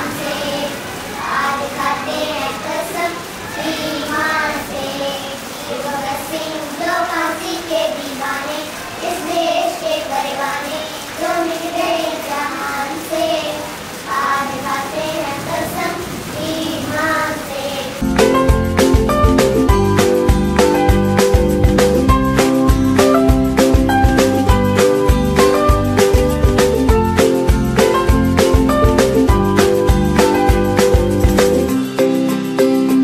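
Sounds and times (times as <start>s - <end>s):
girls singing together: 0.0s - 18.0s
instrumental music with a beat: 18.0s - 33.0s.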